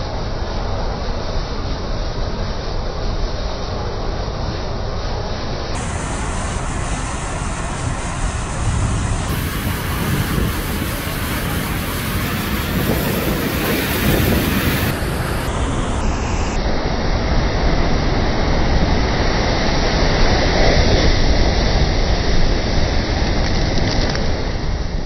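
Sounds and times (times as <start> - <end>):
surf crashing over rocks: 5.8 - 16.2
wind buffeting microphone: 5.8 - 23.8.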